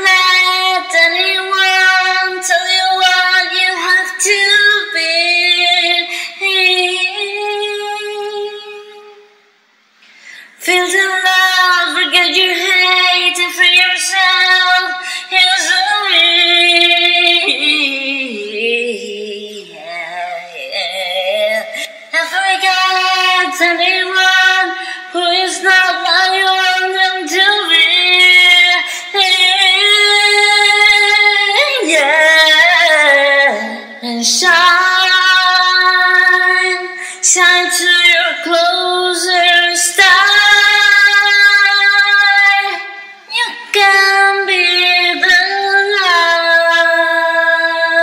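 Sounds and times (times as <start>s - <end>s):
woman singing wordlessly: 0.0s - 9.4s, 10.5s - 48.0s
singer breathing: 6.1s - 6.4s, 10.0s - 10.6s, 15.0s - 15.3s, 24.8s - 25.1s, 36.9s - 37.3s.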